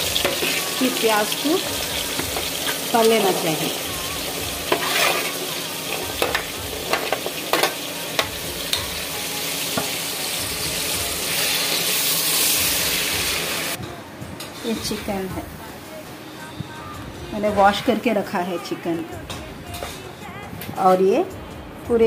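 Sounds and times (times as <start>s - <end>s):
metal spoon scraping a pan: 0.0s - 1.4s, 4.6s - 8.9s
onions sizzling in hot oil: 0.0s - 13.8s.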